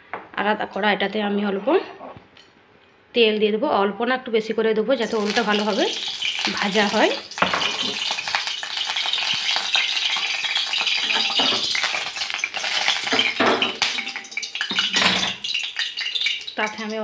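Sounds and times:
oil sizzling and crackling: 5.0 - 17.0.

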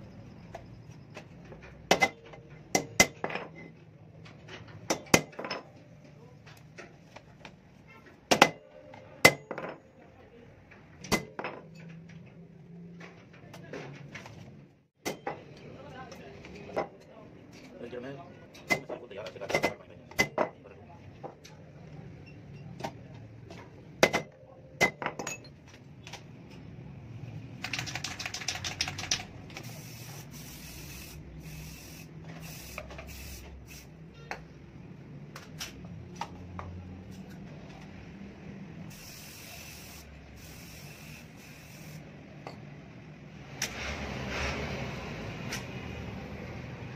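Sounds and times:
aerosol spray can hissing: 29.6 - 33.9, 38.9 - 42.0.

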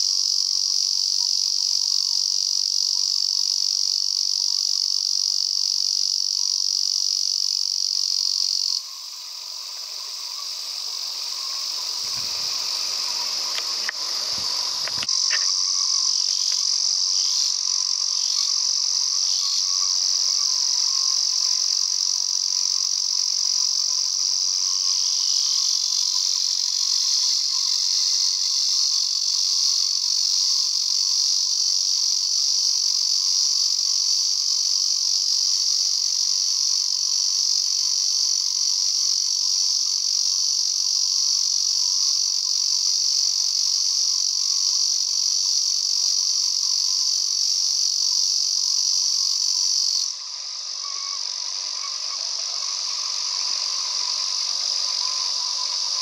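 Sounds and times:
cicada buzzing drone: 0.0 - 56.0.

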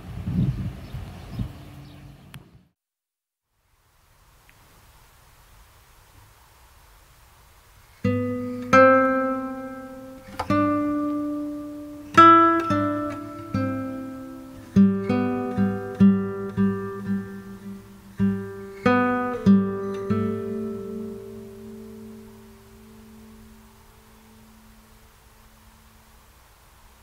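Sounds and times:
acoustic guitar plucked notes: 8.0 - 25.9.

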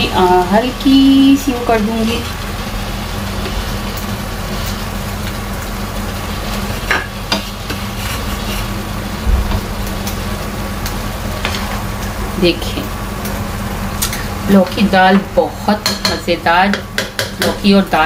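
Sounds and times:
curry sizzling in a pan: 0.0 - 18.0
low hum: 8.8 - 14.4.

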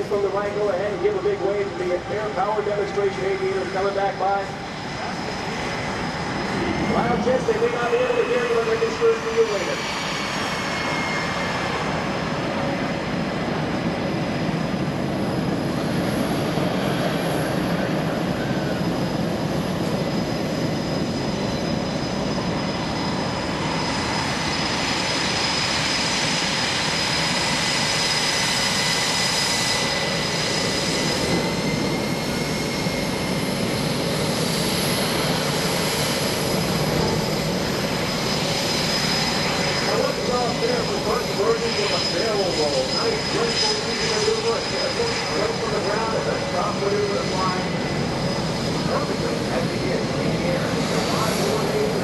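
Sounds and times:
jet engine rushing and whining: 0.0 - 52.0.

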